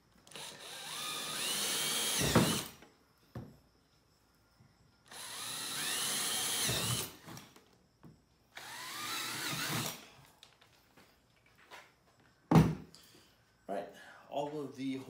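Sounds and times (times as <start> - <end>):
electric drill whining: 0.2 - 2.9, 5.1 - 7.5, 8.5 - 10.0.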